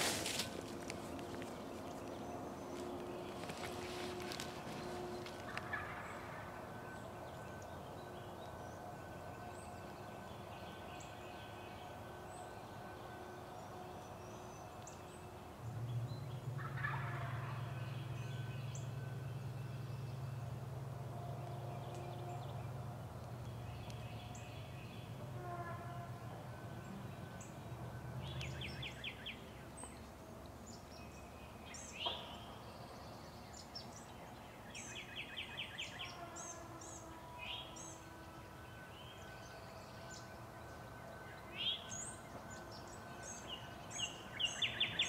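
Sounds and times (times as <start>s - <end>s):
low steady hum: 0.0s - 45.0s
turkey gobbling: 3.4s - 6.5s, 16.6s - 17.6s.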